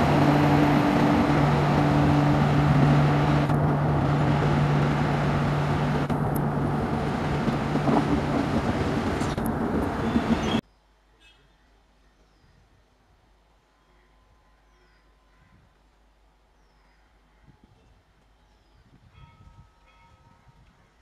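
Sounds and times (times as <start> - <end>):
train wheels rumbling on rails: 0.0 - 10.6.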